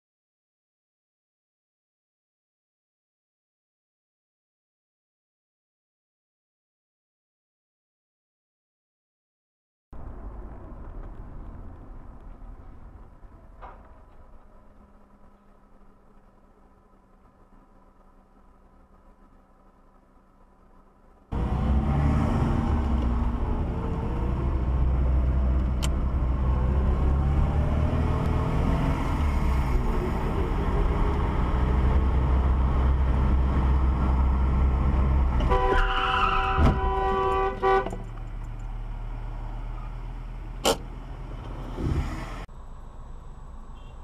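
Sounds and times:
car road and engine noise: 10.0 - 44.0
car horn: 35.4 - 38.1, 43.7 - 44.0.

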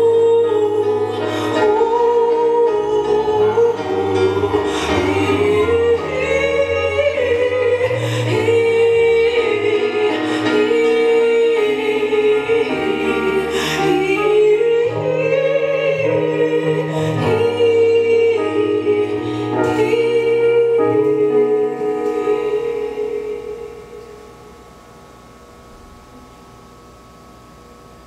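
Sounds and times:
slow music with singing: 0.0 - 25.2.

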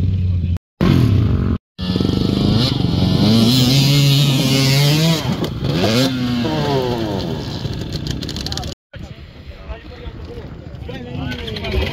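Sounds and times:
off-road vehicle engine revving: 0.0 - 8.7.

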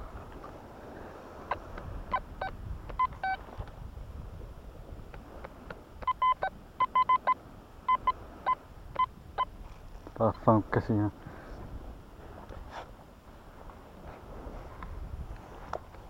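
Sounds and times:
metal detector beeps: 1.5 - 3.4, 6.0 - 9.5.

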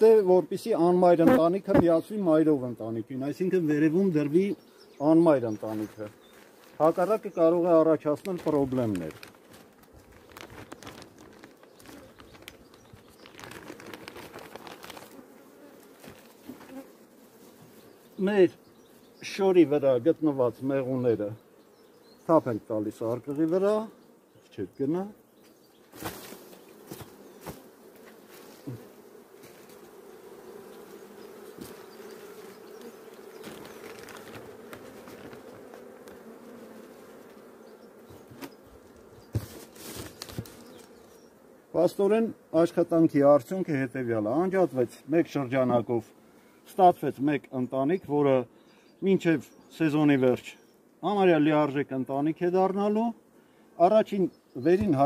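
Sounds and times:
honeybees humming: 0.0 - 55.0
plastic film and cloth crinkling: 5.6 - 7.2, 8.2 - 15.2, 33.4 - 36.2, 39.3 - 40.9.

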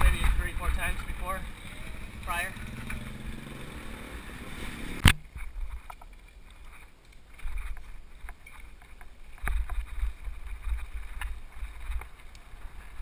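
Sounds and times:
bike rattling over dirt road: 0.0 - 13.0
wind buffeting microphone: 9.4 - 13.0.

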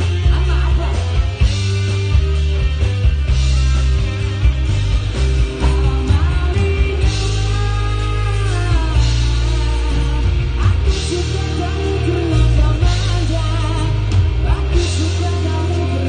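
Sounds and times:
man singing: 0.0 - 1.6, 5.6 - 16.0
rock band playing live: 0.0 - 16.0.

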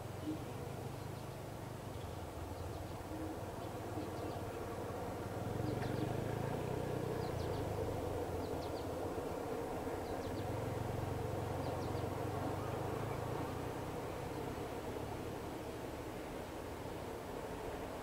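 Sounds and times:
bird chirping: 11.4 - 13.4.

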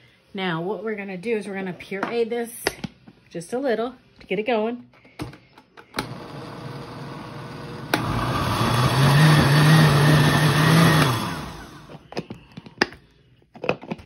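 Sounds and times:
blender motor running: 6.0 - 12.0.

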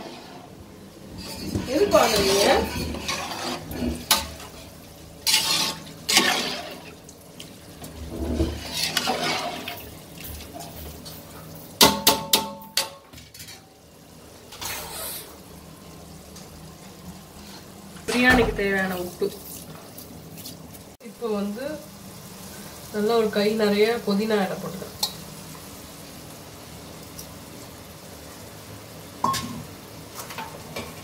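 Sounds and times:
ladle stirring rice and water: 0.0 - 13.8.

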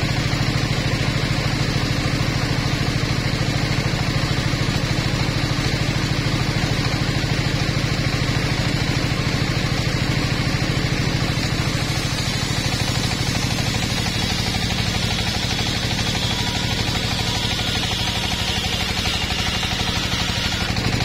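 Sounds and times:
table saw motor running: 0.0 - 21.0
saw blade hissing through wood: 11.6 - 21.0.

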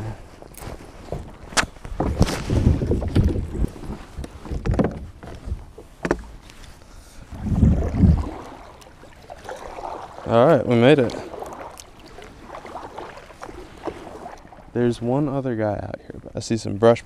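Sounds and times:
paddle splashing through water: 7.3 - 14.8
paddle knocking against kayak: 10.9 - 14.6.

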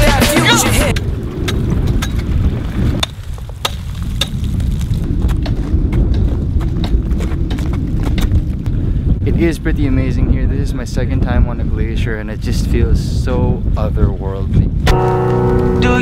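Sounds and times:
wind buffeting microphone: 0.9 - 15.8
crampon steps crunching on ice: 3.0 - 8.3.

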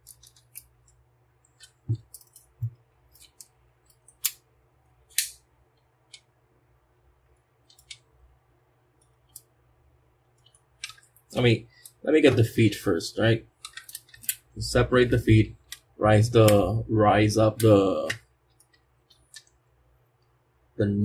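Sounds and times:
plastic toy parts clicking: 0.0 - 4.4, 5.1 - 5.4, 7.6 - 8.0, 13.6 - 14.5.

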